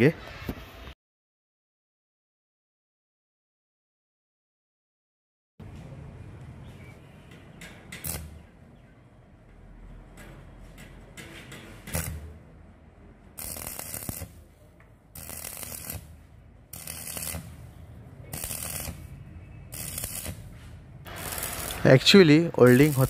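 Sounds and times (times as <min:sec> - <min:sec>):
welding arc crackling: 0:08.0 - 0:08.4, 0:11.9 - 0:12.3, 0:13.4 - 0:14.4, 0:15.2 - 0:17.6, 0:18.3 - 0:19.1, 0:19.7 - 0:20.5, 0:21.1 - 0:23.0.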